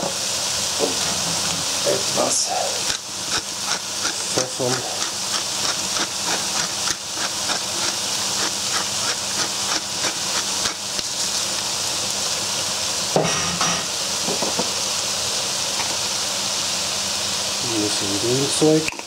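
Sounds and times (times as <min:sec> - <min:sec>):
food sizzling in a pan: 0:00.0 - 0:19.0
pepper mill grinding: 0:02.2 - 0:11.7.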